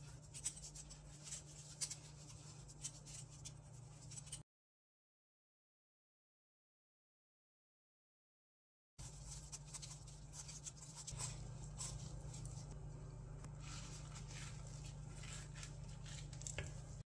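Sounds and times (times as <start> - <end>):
knife scraping and tapping fruit: 0.0 - 4.4, 9.0 - 12.8, 13.4 - 17.0
low hum: 9.0 - 17.0.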